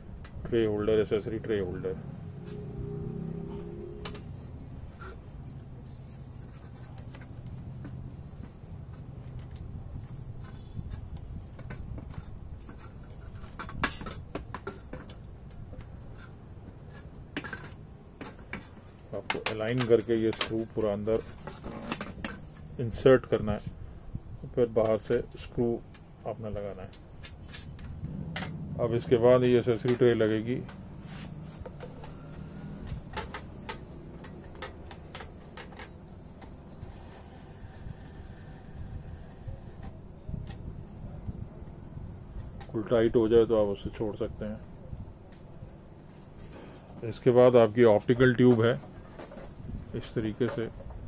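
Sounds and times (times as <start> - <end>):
plastic bracket clicks and scrapes: 4.9 - 22.7, 29.4 - 40.7.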